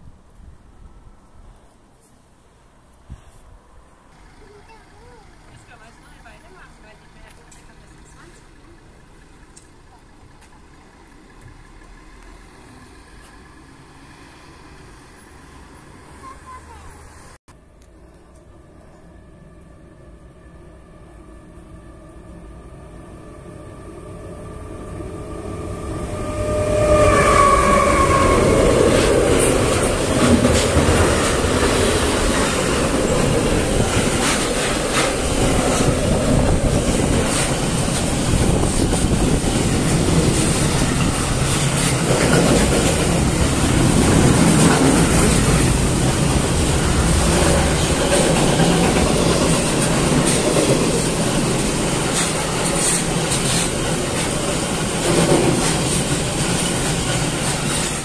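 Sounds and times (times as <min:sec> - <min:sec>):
freight train wheels clattering: 0:26.3 - 0:58.0.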